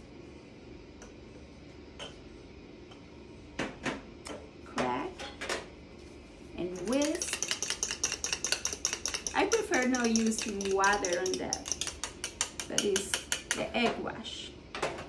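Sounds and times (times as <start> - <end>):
egg whisked in ceramic bowl: 6.6 - 13.8.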